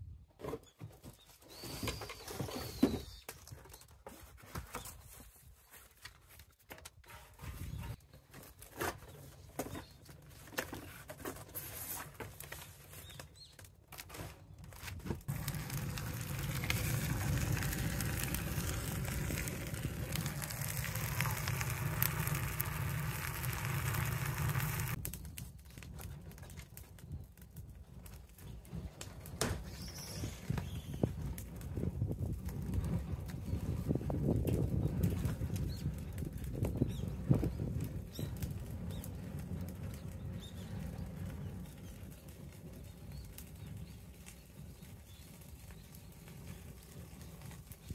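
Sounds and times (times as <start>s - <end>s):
fire crackling and popping: 12.3s - 47.9s
rushing fire noise: 15.2s - 25.0s.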